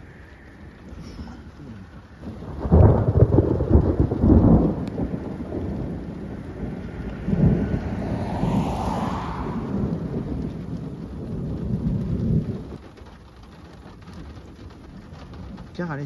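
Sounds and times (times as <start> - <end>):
crackling thunder rumble: 0.0 - 16.0.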